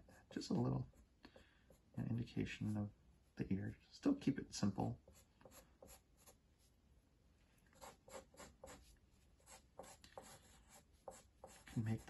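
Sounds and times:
pencil scratching on paper: 5.0 - 6.4, 7.8 - 12.0.

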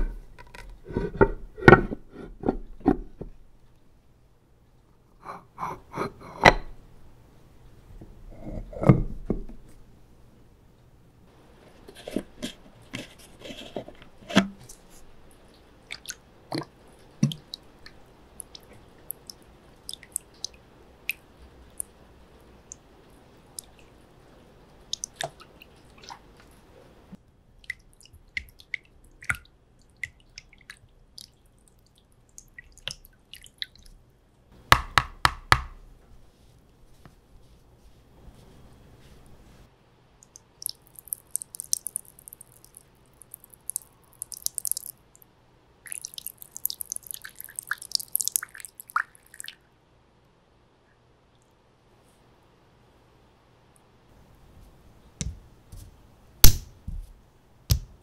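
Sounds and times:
water dripping onto stone: 16.0 - 21.2, 24.9 - 25.4, 40.2 - 45.0, 45.9 - 49.5.

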